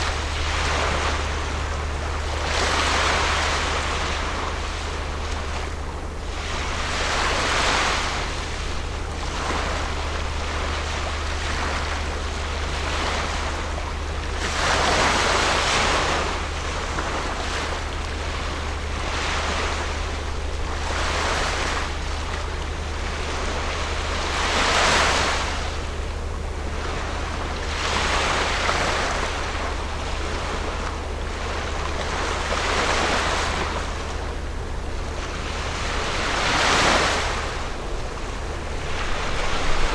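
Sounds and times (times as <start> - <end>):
waves breaking on shore: 0.0 - 39.9
low rumble: 30.0 - 39.9.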